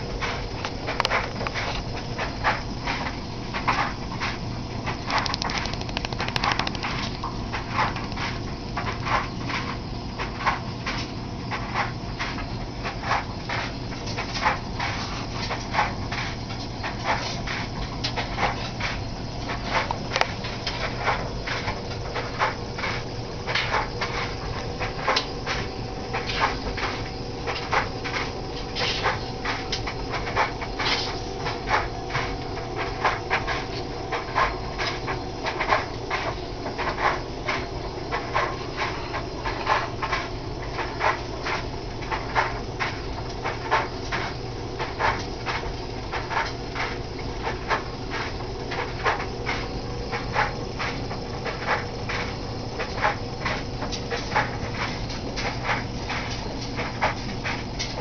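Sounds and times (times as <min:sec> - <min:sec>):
engine piston puffing and clicking: 0:00.2 - 0:08.3.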